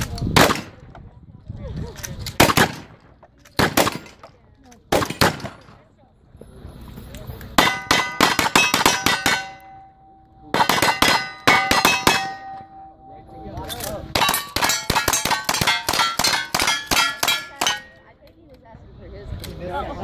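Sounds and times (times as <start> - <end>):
rapid gunfire: 2.4 - 3.0, 4.9 - 5.8, 10.6 - 12.4
steel targets clanging: 7.4 - 18.2.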